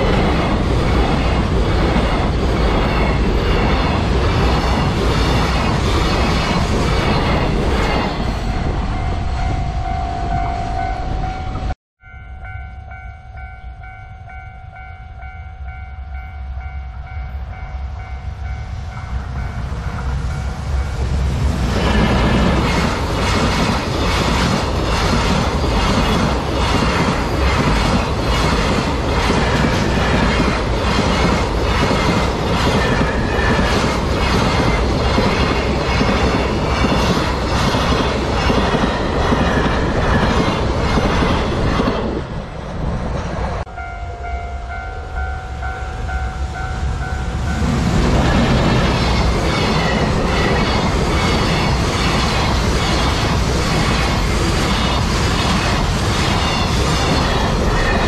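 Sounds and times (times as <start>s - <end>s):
level crossing warning bell: 8.4s - 21.0s, 43.7s - 47.8s.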